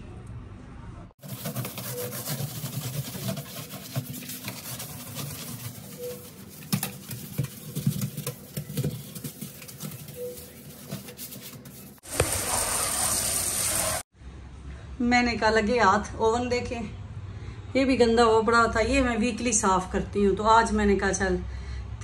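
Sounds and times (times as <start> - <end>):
brush scrubbing steel sink: 1.2 - 14.0
tap water running into sink: 12.1 - 14.0.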